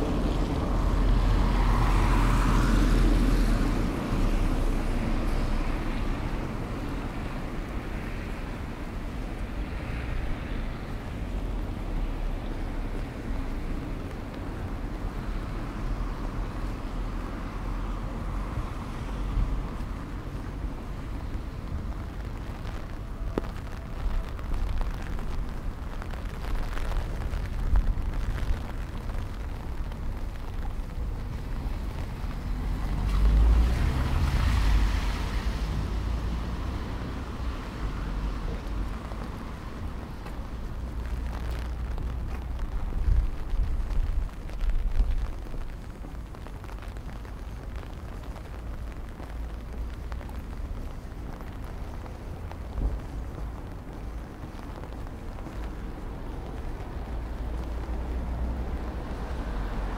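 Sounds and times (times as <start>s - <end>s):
strong wind buffeting microphone: 16.2s - 32.8s, 37.1s - 59.9s.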